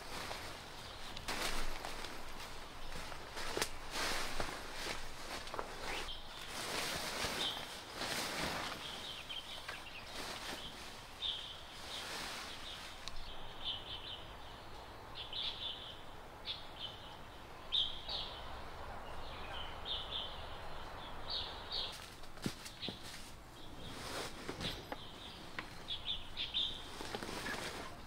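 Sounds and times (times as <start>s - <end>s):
rustling: 0.0s - 13.8s, 21.8s - 28.0s
small birds chirping: 0.0s - 28.0s.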